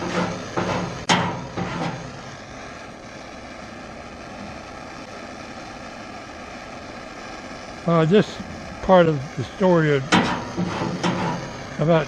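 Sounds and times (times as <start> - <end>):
metal scraper rasping on steel: 0.0 - 2.1, 10.1 - 11.5
propane torch hissing: 0.0 - 12.0.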